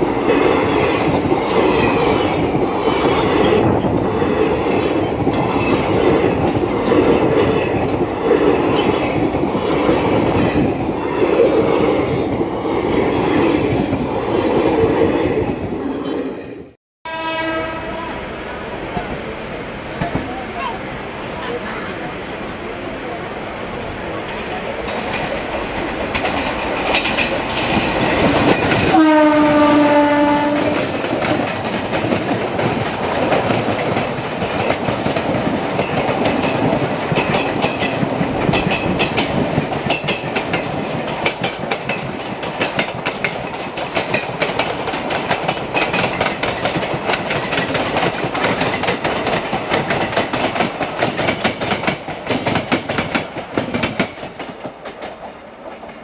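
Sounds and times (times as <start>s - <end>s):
train wheel noise: 0.0s - 16.7s, 17.6s - 56.0s
train horn blast: 17.0s - 18.4s, 28.9s - 31.0s
wheels clacking over rail joints: 24.2s - 56.0s.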